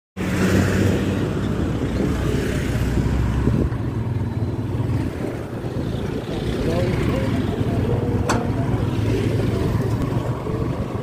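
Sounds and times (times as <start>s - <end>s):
wind on microphone: 0.2s - 11.0s.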